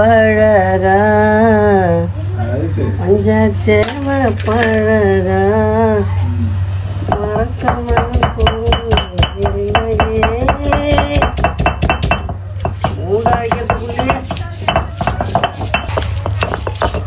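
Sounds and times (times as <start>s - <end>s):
stone roller clacking on stone slab: 7.1s - 17.0s.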